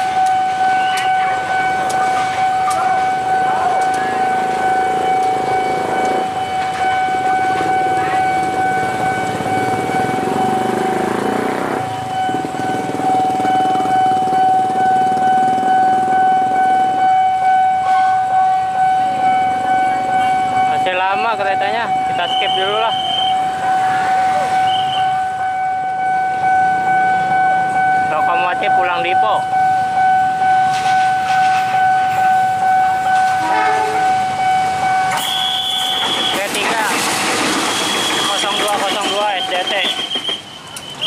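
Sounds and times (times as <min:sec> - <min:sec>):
level crossing warning alarm: 0:00.0 - 0:41.0
train rumble: 0:00.0 - 0:41.0.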